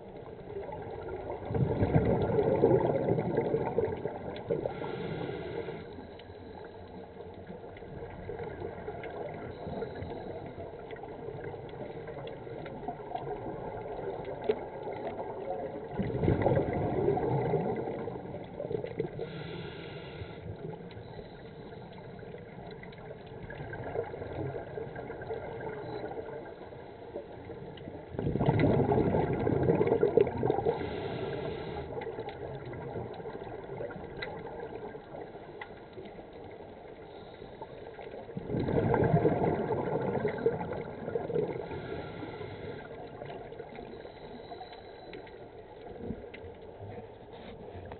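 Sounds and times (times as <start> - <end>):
bubbles gurgling: 0.0 - 5.0, 7.8 - 19.4, 22.1 - 26.5, 27.4 - 31.2, 32.0 - 35.5, 38.2 - 43.8
scuba diver breathing underwater: 2.4 - 6.8, 19.0 - 22.2, 28.5 - 32.2, 37.0 - 45.6.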